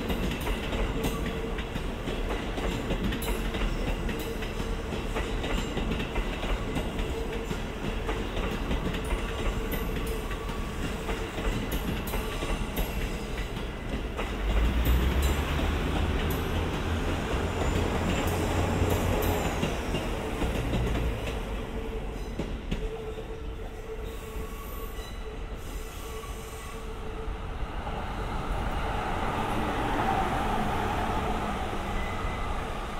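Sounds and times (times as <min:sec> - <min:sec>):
wheels clacking over rail joints: 0:00.0 - 0:23.0
train rumbling: 0:00.0 - 0:32.9.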